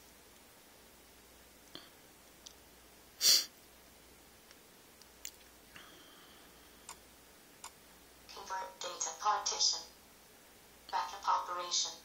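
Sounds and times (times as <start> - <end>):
person sniffing: 3.2 - 3.5.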